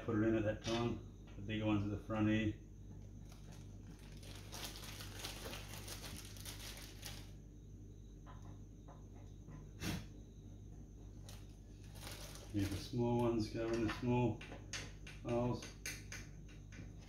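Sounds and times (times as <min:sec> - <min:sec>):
steady low hum: 0:00.0 - 0:17.0
plastic bag crinkling: 0:03.2 - 0:07.4, 0:11.2 - 0:13.0.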